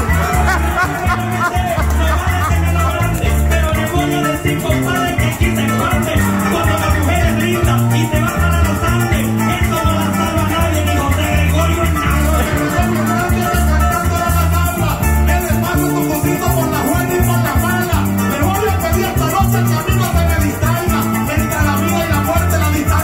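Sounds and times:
cuatro plucking: 0.0s - 23.0s
electric bass line: 0.0s - 23.0s
maracas shaking: 0.0s - 23.0s.

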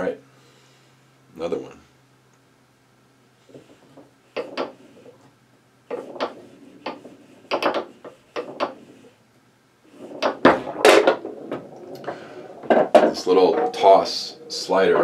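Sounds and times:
foosball rods rattling: 3.4s - 5.2s, 5.9s - 9.2s, 9.9s - 15.0s
foosball ball clacking: 3.5s - 5.1s, 5.9s - 9.1s, 9.9s - 15.0s.

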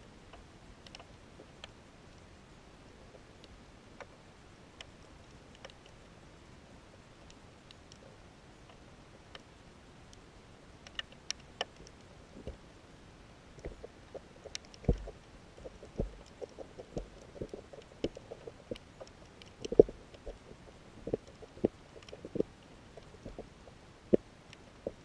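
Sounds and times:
underwater clicks and knocks: 13.6s - 25.0s.

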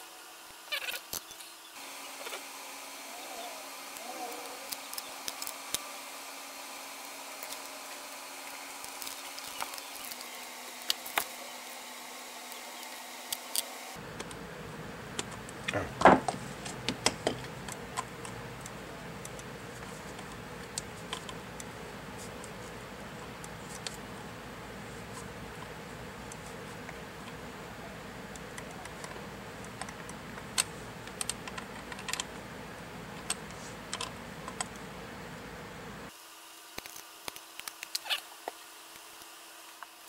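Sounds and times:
faint steady hum: 0.0s - 40.0s.

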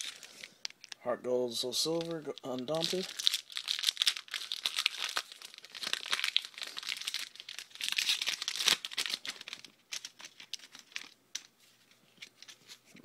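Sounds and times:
wrapper tearing and crinkling: 0.0s - 1.0s, 1.8s - 11.2s.

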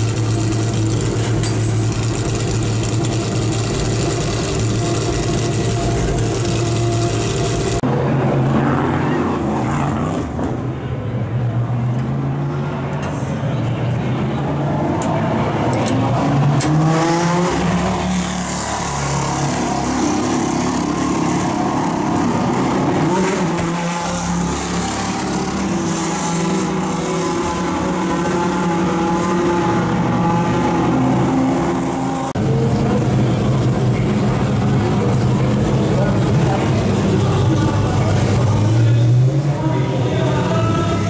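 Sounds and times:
race car engines idling: 0.0s - 7.8s, 32.4s - 41.0s.

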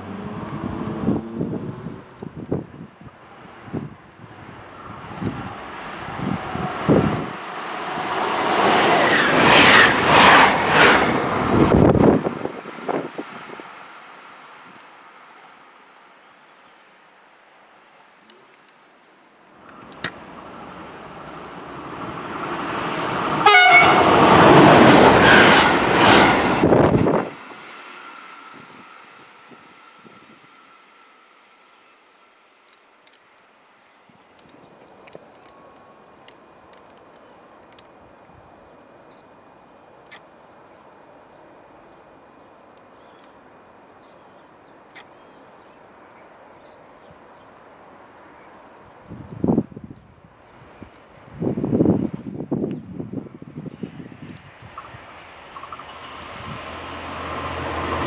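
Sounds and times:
open-air background hiss: 0.0s - 58.0s
wind buffeting microphone: 0.2s - 13.7s, 22.0s - 27.4s, 49.0s - 58.0s
train rushing past: 3.2s - 16.3s, 19.7s - 32.6s, 53.3s - 58.0s
train horn blast: 23.4s - 24.1s.

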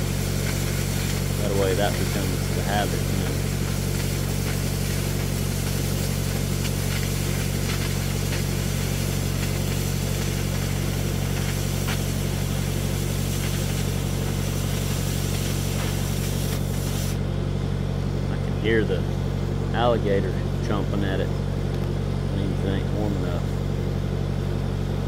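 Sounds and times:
cutting torch hissing: 0.0s - 17.2s
torch crackling and spitting: 0.0s - 17.2s
engine idling: 0.0s - 25.0s.

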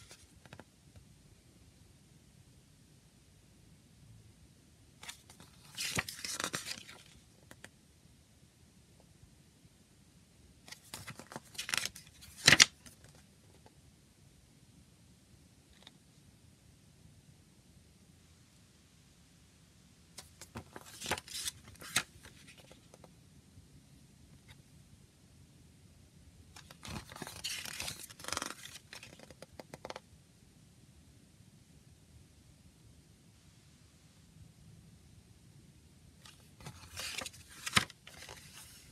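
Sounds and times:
booklet pages turning: 0.0s - 0.7s, 5.0s - 7.7s, 10.7s - 13.2s, 20.2s - 23.1s, 26.6s - 30.0s, 36.2s - 38.9s.

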